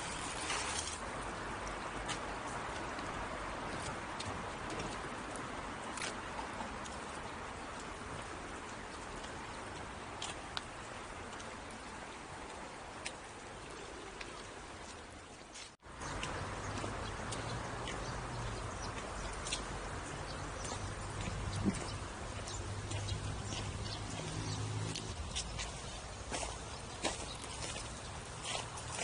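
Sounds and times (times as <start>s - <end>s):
outdoor background noise: 0.0s - 29.0s.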